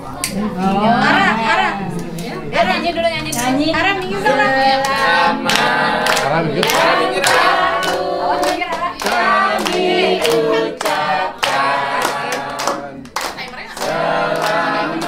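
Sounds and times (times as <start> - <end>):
group singing a celebration song: 0.0 - 15.0
people clapping along: 4.7 - 15.0.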